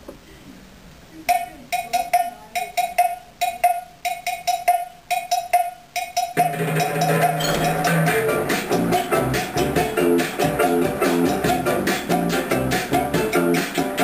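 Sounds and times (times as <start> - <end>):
pitched percussion knocks: 1.3 - 14.0
rock band playing: 6.4 - 14.0.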